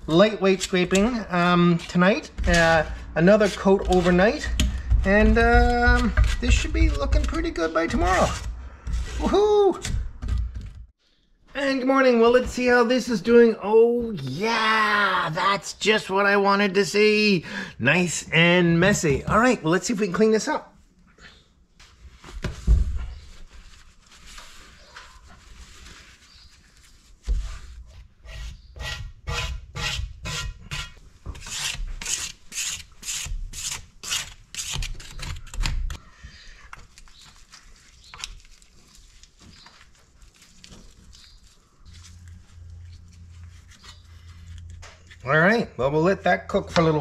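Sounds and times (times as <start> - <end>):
scratchy scraper strokes: 0.6 - 4.8, 27.3 - 35.2
faint brushing and rubbing: 1.4 - 9.4, 21.7 - 28.7, 37.0 - 45.5.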